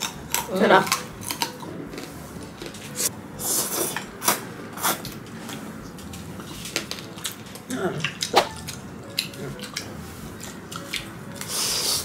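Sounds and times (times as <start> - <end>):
chewing and mouth clicks: 0.0 - 2.8, 6.0 - 12.0.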